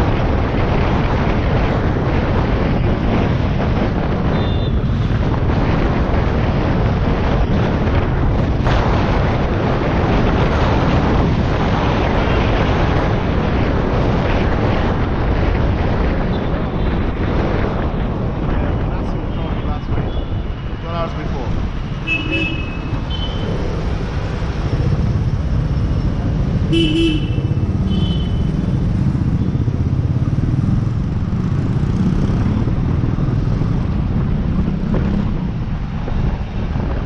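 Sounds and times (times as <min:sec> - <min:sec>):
road noise: 0:00.0 - 0:37.0
wind rushing over microphone: 0:00.0 - 0:37.0
motorcycle engine running: 0:22.3 - 0:35.4.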